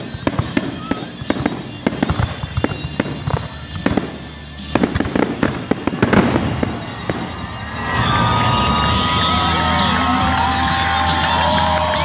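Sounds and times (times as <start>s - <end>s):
firework shells bursting: 0.0s - 7.8s.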